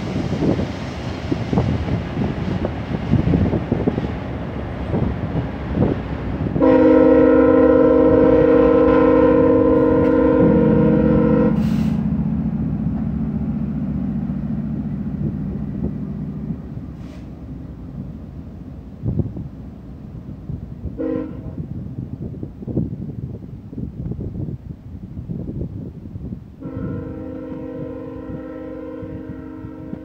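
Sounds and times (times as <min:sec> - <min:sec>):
diesel locomotive drone: 0:00.0 - 0:30.0
train coaches rolling on rails: 0:00.0 - 0:30.0
locomotive horn chord: 0:06.6 - 0:12.2, 0:21.0 - 0:21.6, 0:26.6 - 0:30.0.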